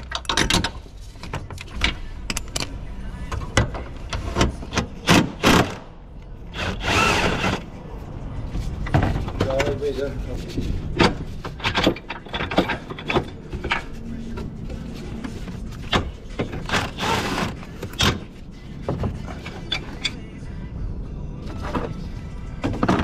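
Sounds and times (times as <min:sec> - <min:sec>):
metallic clicks and knocks: 0:00.0 - 0:05.3.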